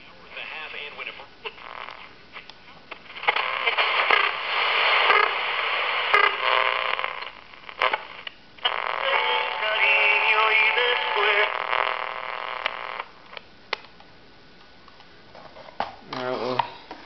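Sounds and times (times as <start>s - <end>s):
radio static hiss and crackle: 0.0s - 13.8s
radio station tones: 3.0s - 13.2s.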